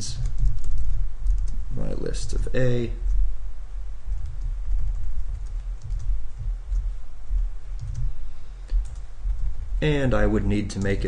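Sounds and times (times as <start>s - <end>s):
steady low hum: 0.0s - 11.0s
computer keyboard keystrokes: 0.1s - 1.6s, 4.2s - 6.1s, 6.7s - 8.1s, 8.7s - 9.1s.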